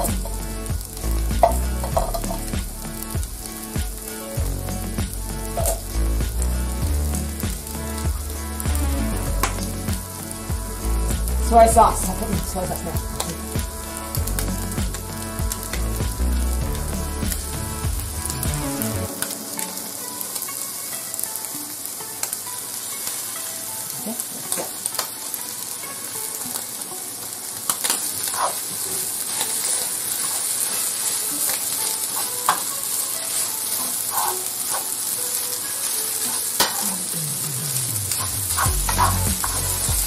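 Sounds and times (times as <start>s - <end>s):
rice sizzling in frying pan: 0.0s - 40.0s
spatula scraping pan: 29.3s - 35.0s, 37.8s - 40.0s.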